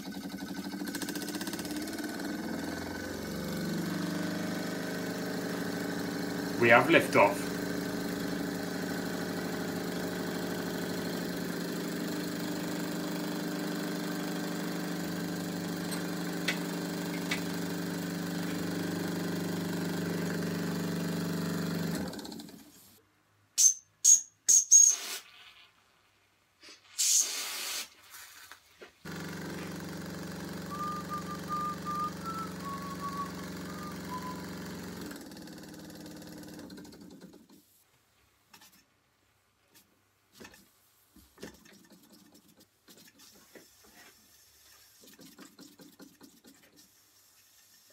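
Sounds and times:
small steam engine running: 0.0 - 22.6, 29.1 - 37.4.

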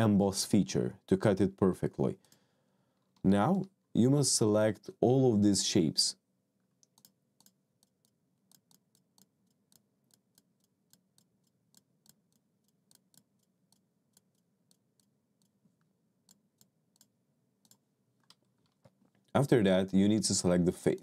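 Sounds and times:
faint mouse clicks: 6.8 - 19.0.

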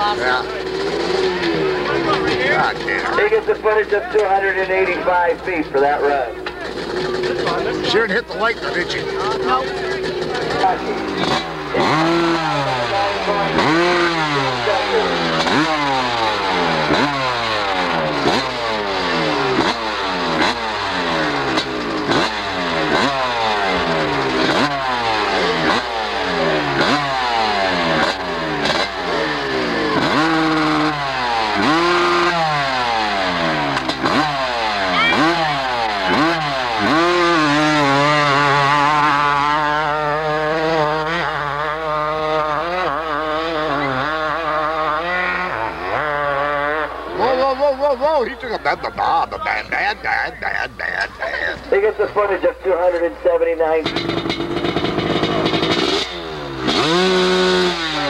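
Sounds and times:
dirt bike revving: 0.0 - 58.0.

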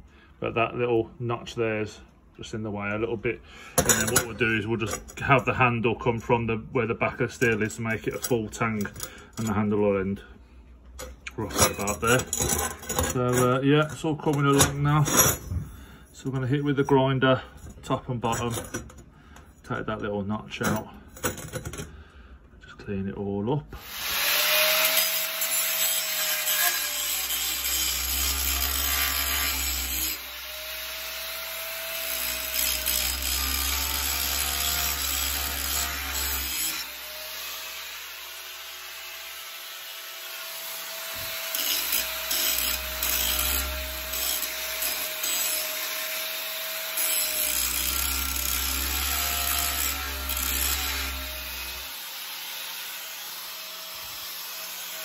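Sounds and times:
angle grinder grinding steel: 23.8 - 55.0.

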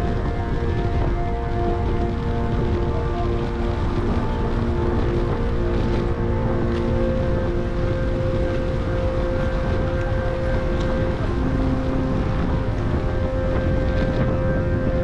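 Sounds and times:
music of long held notes: 0.0 - 15.0
wind rumble on microphone: 0.0 - 15.0.

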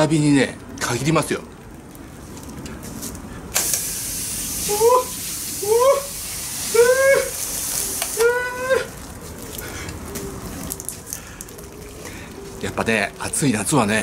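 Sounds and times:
hose spray nozzle hissing: 3.5 - 8.3
man yelping: 4.6 - 7.4, 8.2 - 9.0.

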